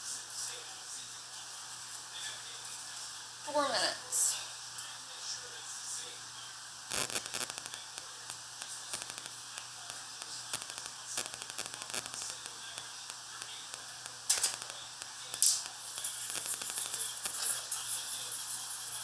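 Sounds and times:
steady hiss: 4.2 - 19.0.

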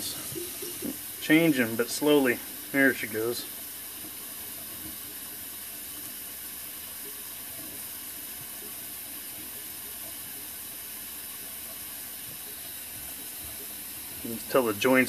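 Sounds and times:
tap water running down drain: 0.0 - 15.0.

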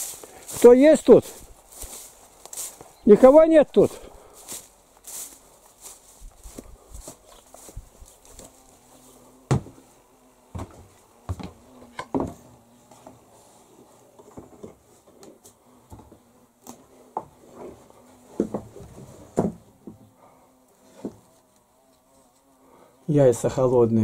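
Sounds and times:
faint buzz: 0.0 - 24.0
knocks on wooden boards: 9.5 - 9.8, 10.5 - 12.4, 18.4 - 20.0.

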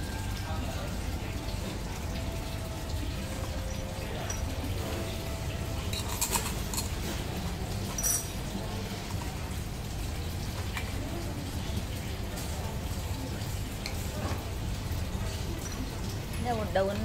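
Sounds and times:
teaspoon clinking on cup: 5.9 - 7.0, 7.9 - 8.4.

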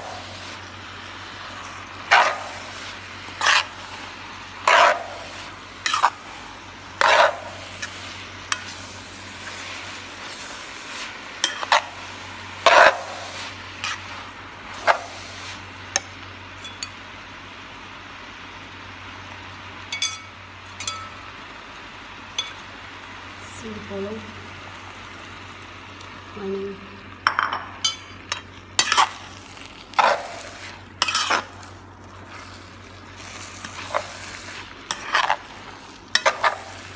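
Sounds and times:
noodles sizzling in a pan: 0.0 - 36.9
tongs scraping a pan: 2.1 - 2.7, 3.4 - 3.8, 4.6 - 6.2, 7.0 - 8.8, 10.9 - 12.0, 12.6 - 14.2, 27.9 - 29.2, 29.9 - 31.7, 33.6 - 35.5, 36.1 - 36.9
light ringing metallic clinks: 16.6 - 17.0, 19.9 - 21.2.

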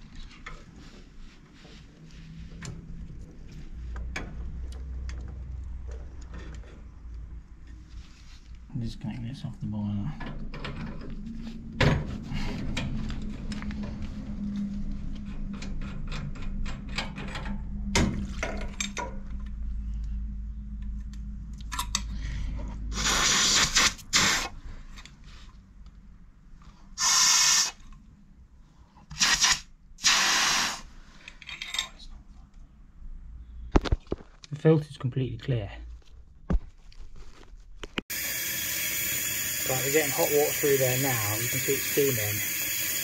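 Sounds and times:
water spraying with hissing spurts: 27.0 - 27.8, 29.2 - 30.8, 38.1 - 43.0.

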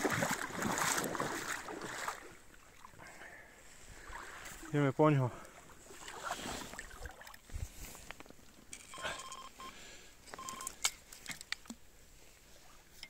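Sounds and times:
fishing gear clicks and knocks: 8.0 - 9.5, 10.2 - 11.8
bite alarm beeping: 8.9 - 9.8, 10.4 - 10.8.

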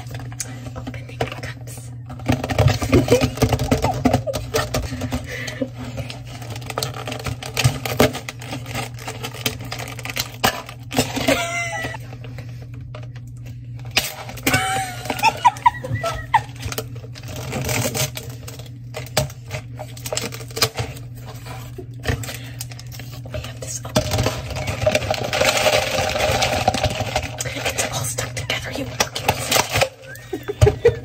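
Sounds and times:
ice cubes clinking in cups: 2.2 - 12.0, 14.0 - 21.0, 23.9 - 31.0.

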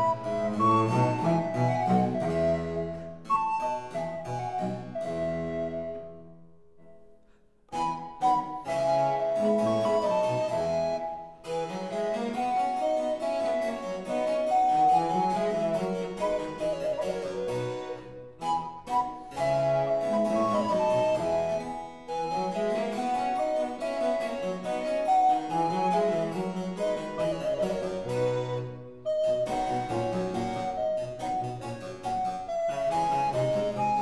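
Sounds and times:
instrumental keyboard music: 7.7 - 34.0.

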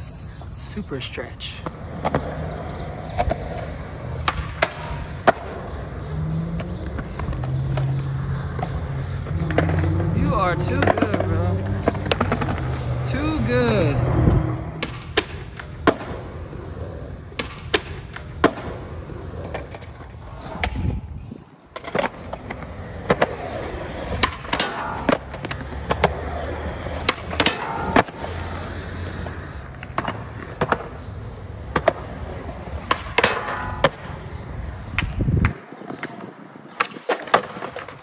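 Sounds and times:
skateboard wheels rolling on concrete: 0.0 - 38.0
skateboard pops and clacks: 3.0 - 5.7, 10.8 - 12.7, 14.7 - 16.4, 17.3 - 21.0, 21.7 - 34.3, 34.9 - 38.0.

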